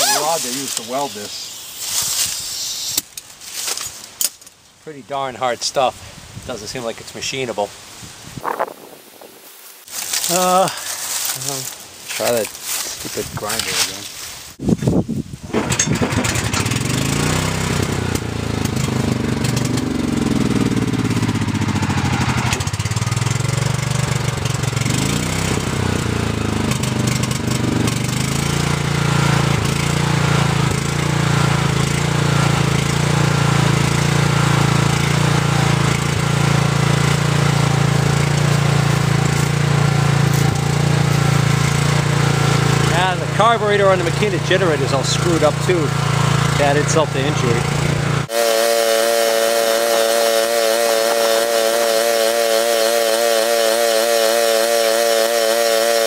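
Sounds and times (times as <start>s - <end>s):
generator engine running: 0.0s - 2.9s, 15.4s - 56.0s.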